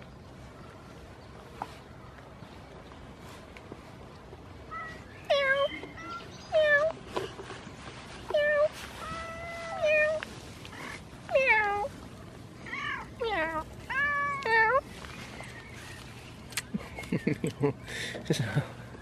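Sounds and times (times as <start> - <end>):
cat meowing: 12.6 - 14.8.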